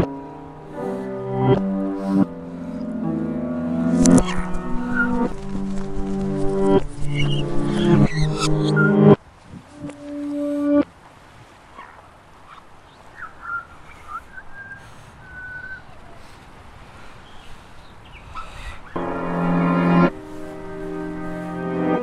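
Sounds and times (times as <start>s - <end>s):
musical chord: 0.0s - 9.2s, 19.0s - 22.0s
high whistle-like chirps: 4.0s - 5.4s, 6.4s - 9.1s.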